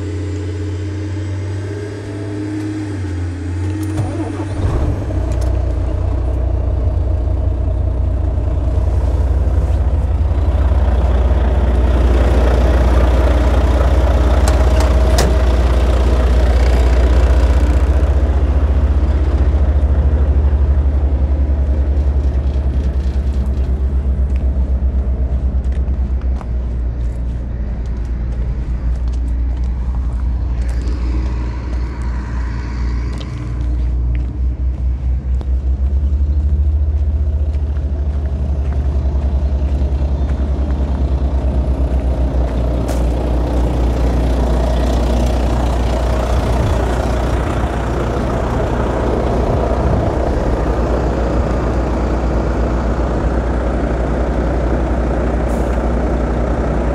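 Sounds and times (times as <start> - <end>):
diesel engine idling: 0.0 - 56.9.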